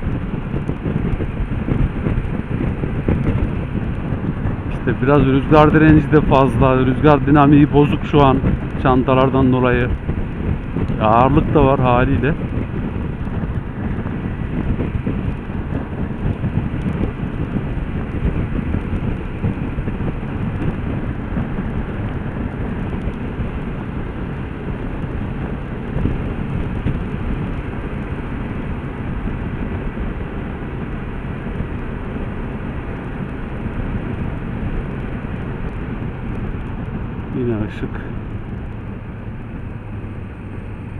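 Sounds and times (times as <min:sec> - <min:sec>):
motorcycle engine and tyre noise: 0:00.0 - 0:40.9
wind buffeting microphone: 0:00.0 - 0:40.9.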